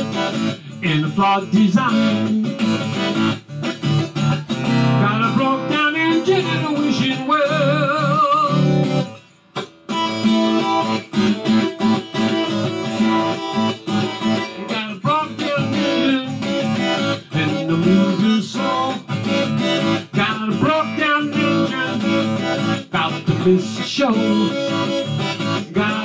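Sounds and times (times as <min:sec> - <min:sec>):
acoustic guitar strumming blues: 0:00.0 - 0:26.0
harmonica bending notes: 0:09.9 - 0:26.0.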